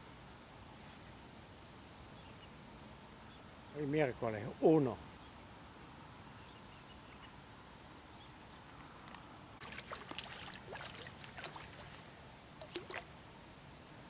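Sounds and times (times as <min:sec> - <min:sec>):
fish splashing into water: 0:09.6 - 0:12.0, 0:12.6 - 0:13.1
crackling and splashing in reeds: 0:09.6 - 0:13.2.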